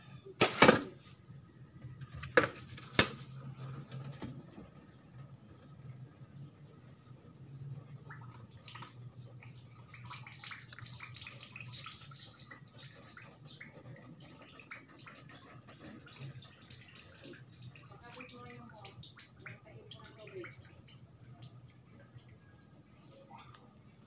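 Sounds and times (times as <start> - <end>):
water dripping in colander: 7.8 - 23.7.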